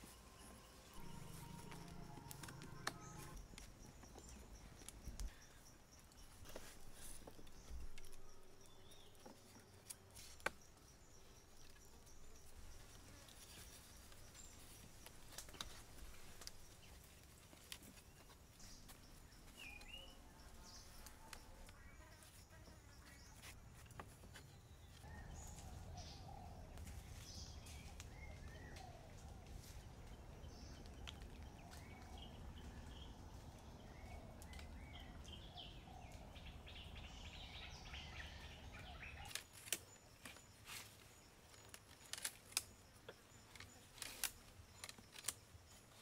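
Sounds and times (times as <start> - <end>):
bird chirps: 0.0 - 9.3, 18.2 - 23.6.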